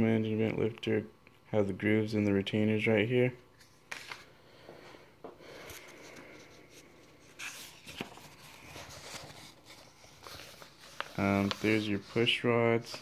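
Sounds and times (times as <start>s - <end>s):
paper rustling: 3.6s - 4.3s, 5.6s - 13.0s.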